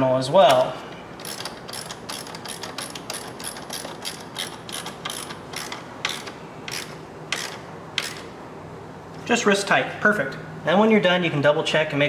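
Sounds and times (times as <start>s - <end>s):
ratchet wrench clicking: 1.2s - 8.3s.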